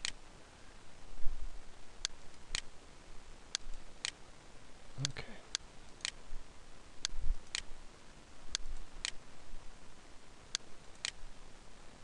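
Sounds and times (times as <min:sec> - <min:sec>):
faint room hiss: 0:00.0 - 0:12.0
computer mouse clicking: 0:02.0 - 0:02.7, 0:03.5 - 0:04.2, 0:05.0 - 0:06.2, 0:07.0 - 0:07.7, 0:08.5 - 0:09.2, 0:10.5 - 0:11.2.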